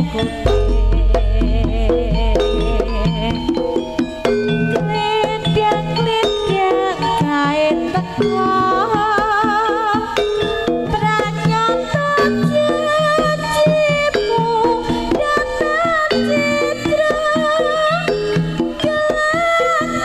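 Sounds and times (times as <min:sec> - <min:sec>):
hand drum strokes: 0:00.0 - 0:07.7
ringing metallophone tones: 0:00.0 - 0:20.0
wavering melody with vibrato: 0:00.0 - 0:20.0.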